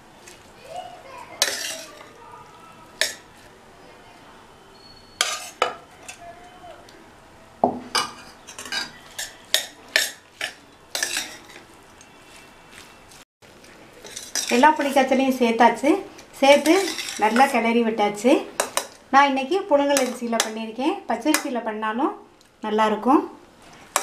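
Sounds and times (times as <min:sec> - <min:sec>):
metal spoon scraping a pot: 0:01.4 - 0:02.1, 0:05.2 - 0:06.2, 0:08.0 - 0:11.7, 0:14.0 - 0:15.1, 0:16.5 - 0:17.6.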